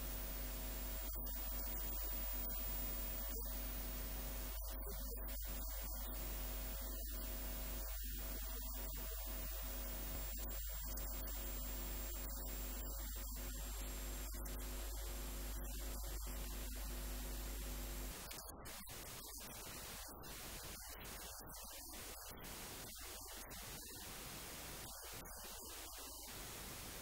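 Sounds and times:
electrical mains hum: 0.0s - 18.7s
faint steady tones: 0.0s - 27.0s.

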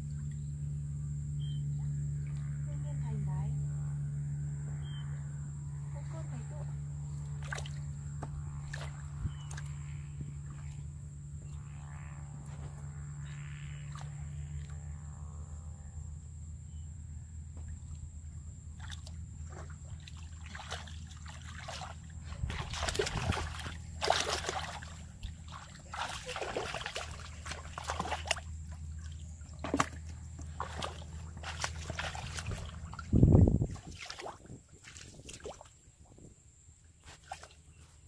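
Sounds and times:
low hum: 0.0s - 38.0s
hands splashing in water: 18.8s - 35.7s.

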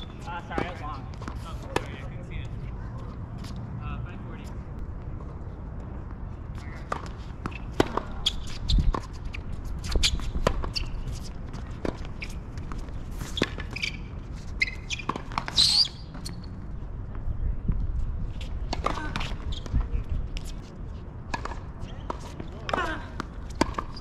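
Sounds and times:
tennis ball bouncing: 9.8s - 13.9s, 14.8s - 16.3s, 21.3s - 24.0s
racket hitting tennis ball: 21.3s - 24.0s.

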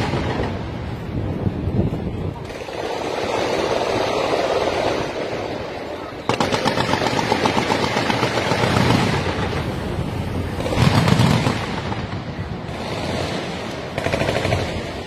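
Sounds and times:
guns firing in rapid bursts: 6.3s - 9.6s, 10.6s - 15.0s
heavy booming explosions: 8.1s - 15.0s.

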